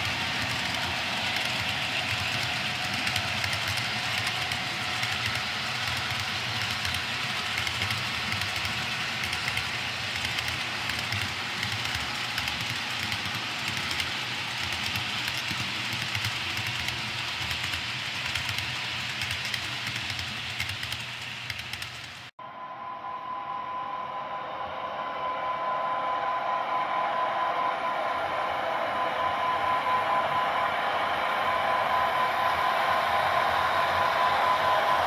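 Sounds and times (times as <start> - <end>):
model train cars rolling: 0.0 - 22.3.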